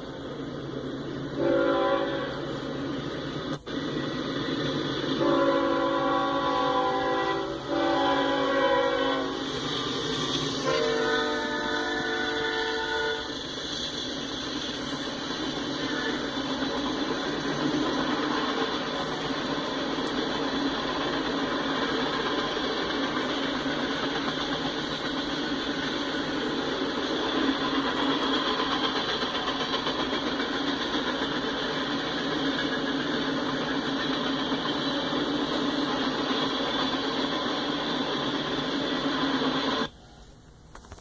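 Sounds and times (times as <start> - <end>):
freight cars rolling on rails: 0.0 - 41.0
locomotive air horn blasts: 1.4 - 2.4, 5.2 - 9.5, 10.6 - 13.3, 15.8 - 16.4.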